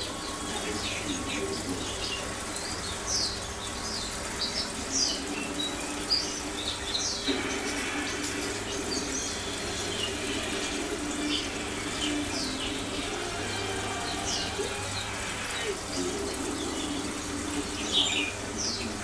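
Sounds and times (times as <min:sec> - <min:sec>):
aquarium air pump hum: 0:00.0 - 0:19.0.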